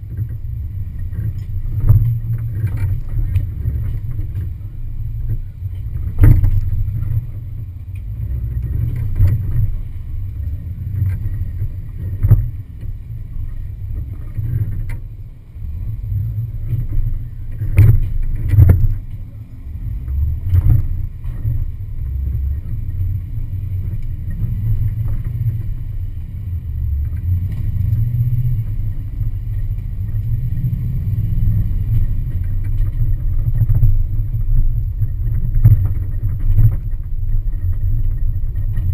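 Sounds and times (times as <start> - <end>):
muffled vehicle engine rumble: 0.0 - 38.9.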